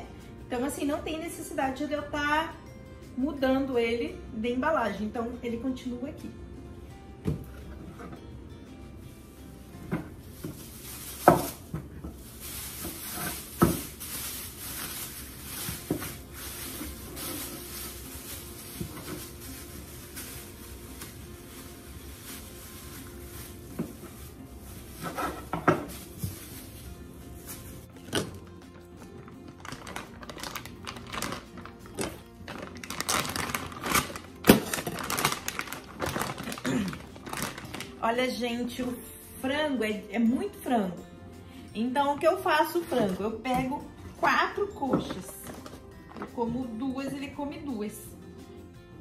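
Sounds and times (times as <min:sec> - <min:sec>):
background music: 0:00.0 - 0:49.0
plastic bags rustling: 0:09.1 - 0:39.0, 0:45.0 - 0:46.4.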